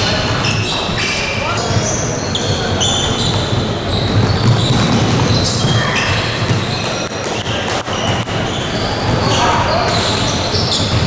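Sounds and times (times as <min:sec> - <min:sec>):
sneakers squeaking on hardwood: 0:00.0 - 0:11.0
basketball bouncing: 0:03.0 - 0:11.0.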